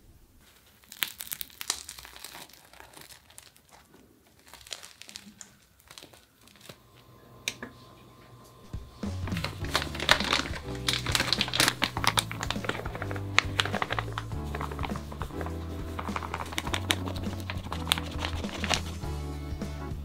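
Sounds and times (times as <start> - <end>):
bread crust crackling: 0.4 - 7.1, 8.7 - 19.1
music: 8.6 - 20.0.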